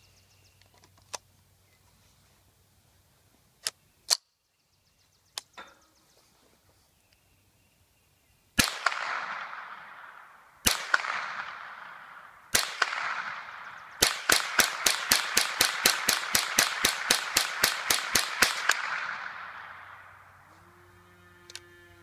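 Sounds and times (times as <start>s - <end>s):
rifle shots with echo: 8.6s - 20.4s.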